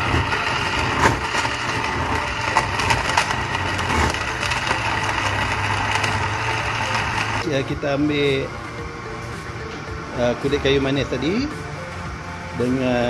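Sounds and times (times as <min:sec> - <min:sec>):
blender running: 0:00.0 - 0:07.6.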